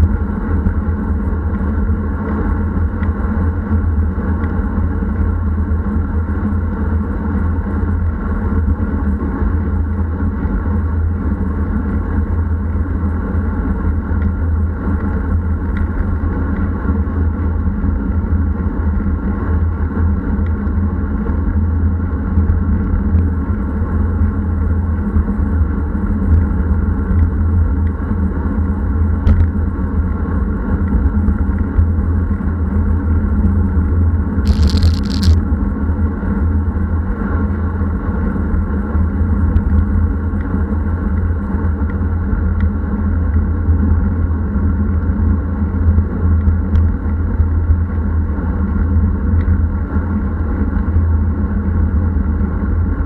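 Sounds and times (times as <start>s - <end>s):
tyre and road noise: 34.5s - 35.4s.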